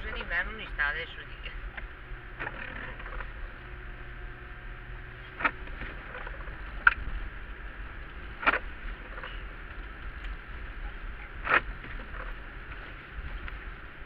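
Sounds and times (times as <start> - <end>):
engine and road rumble in car cabin: 0.0 - 14.0.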